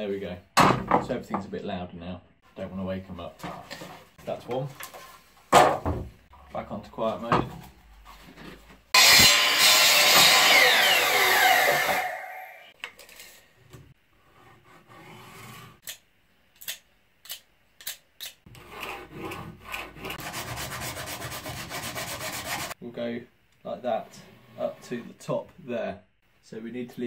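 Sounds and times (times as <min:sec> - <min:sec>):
mitre saw cutting wood: 0:09.0 - 0:12.7, 0:18.5 - 0:22.8
pencil scratching on wood: 0:18.5 - 0:22.8.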